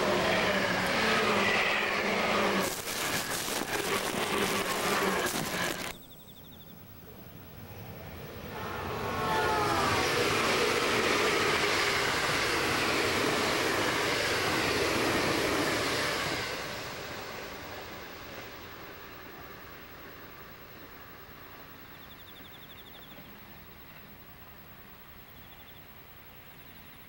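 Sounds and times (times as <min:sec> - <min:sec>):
train passing at speed: 0:00.0 - 0:26.7
crackling noise: 0:00.8 - 0:06.2.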